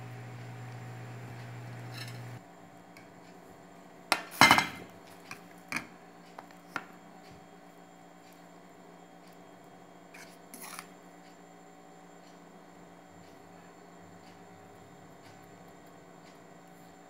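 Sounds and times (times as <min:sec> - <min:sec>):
low steady hum: 0:00.0 - 0:03.9.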